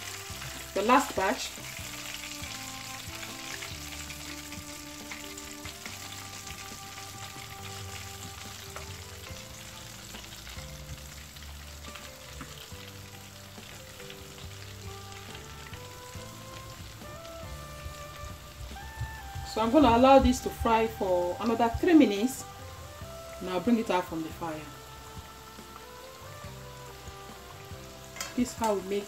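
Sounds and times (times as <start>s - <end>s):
chicken deep-frying in oil: 0.0s - 29.0s.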